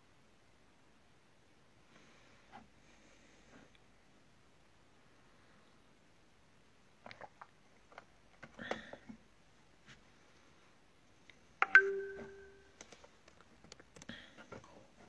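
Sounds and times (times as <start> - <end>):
short ringing tone: 11.6 - 12.7.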